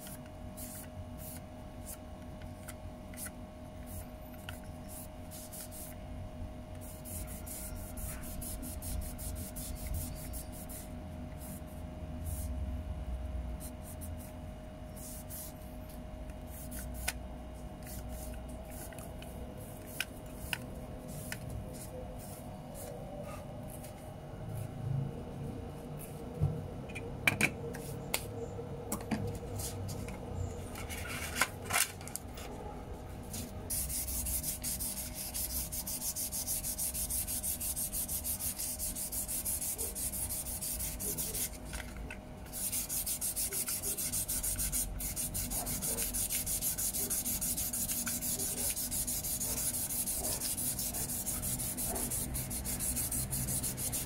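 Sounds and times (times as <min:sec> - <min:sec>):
sandpaper scratching on plastic: 0:06.8 - 0:10.9, 0:33.3 - 0:41.9, 0:42.5 - 0:54.0.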